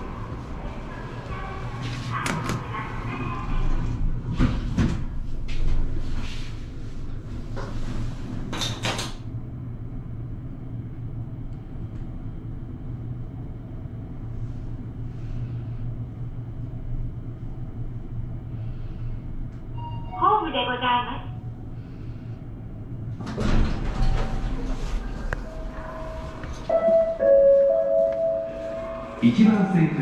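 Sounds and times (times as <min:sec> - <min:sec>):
elevator car humming: 0:00.0 - 0:30.0
elevator doors sliding: 0:23.0 - 0:29.6.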